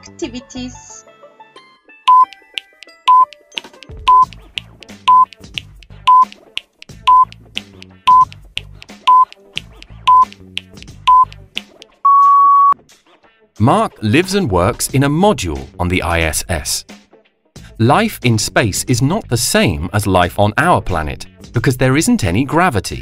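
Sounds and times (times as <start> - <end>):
background music: 0.0 - 23.0
longer beep: 2.1 - 2.3, 5.1 - 5.3, 6.1 - 6.3, 7.1 - 7.3, 8.1 - 8.3, 9.1 - 9.3, 10.1 - 10.3, 11.1 - 11.3, 12.1 - 12.8
short high timer beeps: 2.1 - 2.4, 3.1 - 3.3, 4.1 - 4.3, 5.1 - 5.3, 6.1 - 6.3, 7.1 - 7.3, 8.1 - 8.3, 9.1 - 9.3, 10.1 - 10.3, 11.1 - 11.3, 12.1 - 12.8.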